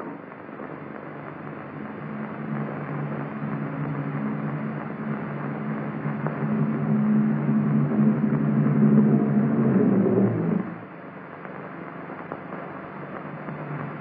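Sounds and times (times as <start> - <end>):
film soundtrack hiss: 0.0 - 14.0
aircraft engine droning: 0.8 - 11.0.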